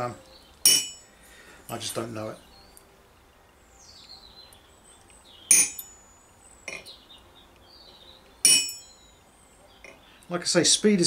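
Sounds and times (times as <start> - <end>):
hammer striking steel chisel: 0.7 - 1.0, 5.5 - 5.9, 8.4 - 8.9.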